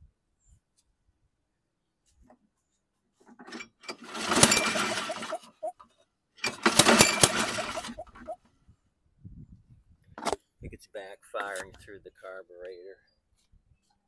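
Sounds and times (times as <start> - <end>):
lawn mower engine pull-start whir: 3.4 - 5.7, 6.4 - 8.4
engine popping: 4.0 - 5.7, 6.5 - 8.4.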